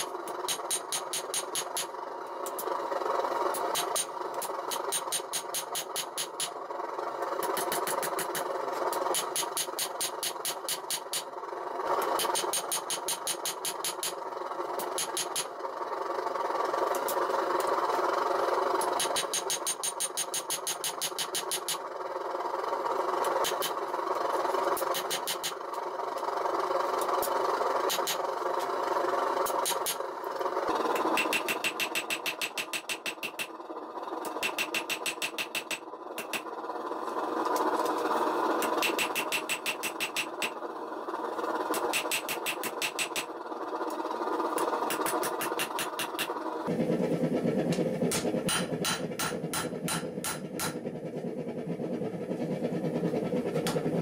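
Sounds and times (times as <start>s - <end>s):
steady rushing noise: 35.5s - 54.0s.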